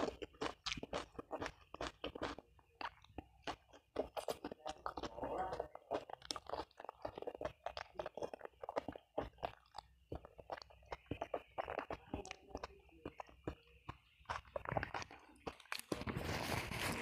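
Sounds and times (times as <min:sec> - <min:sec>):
chicken neck being chewed: 0:00.0 - 0:17.0.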